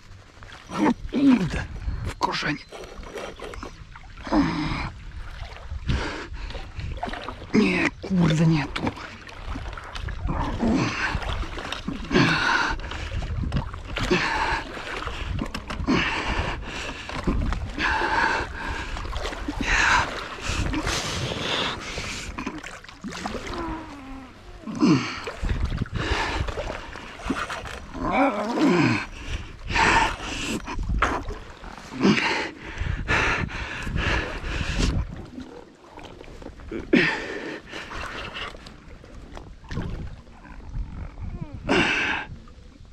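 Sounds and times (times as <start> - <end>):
fish thrashing and splashing: 6.6 - 32.6
man breathing heavily and grunting: 14.0 - 27.3, 36.6 - 38.1.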